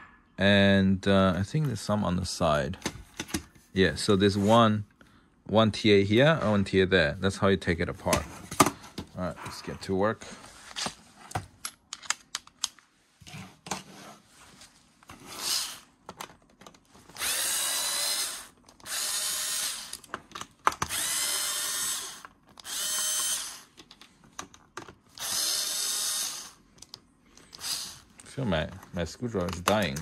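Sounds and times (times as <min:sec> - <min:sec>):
cordless screwdriver whirring: 0:15.3 - 0:15.8, 0:17.1 - 0:20.0, 0:20.8 - 0:23.7, 0:25.1 - 0:26.6, 0:27.4 - 0:28.1
handling clicks and taps: 0:28.2 - 0:30.0.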